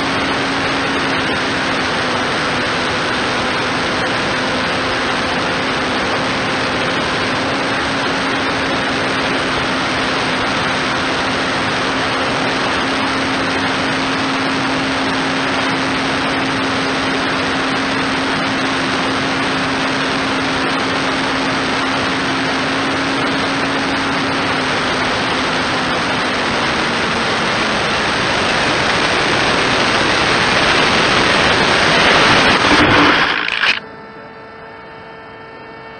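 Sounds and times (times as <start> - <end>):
electric motor and propeller hum: 0.0 - 35.9
rush of air: 31.3 - 33.8.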